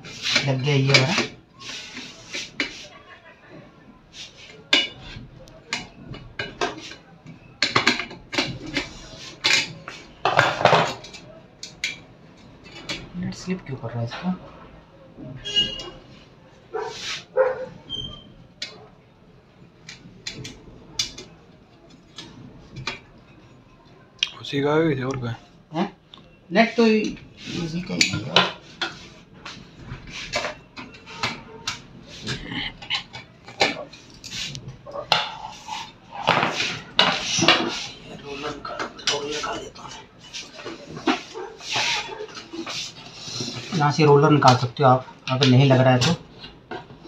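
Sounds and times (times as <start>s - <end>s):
dog barking: 16.7s - 17.8s, 41.3s - 42.4s.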